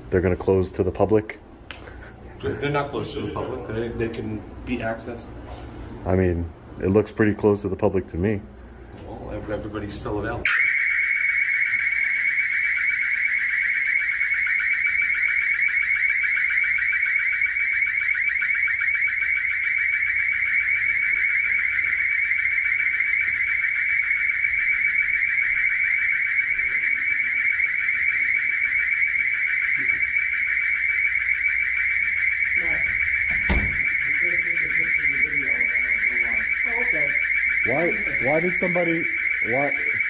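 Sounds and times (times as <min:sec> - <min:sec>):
building alarm sounder: 0:10.4 - 0:40.0.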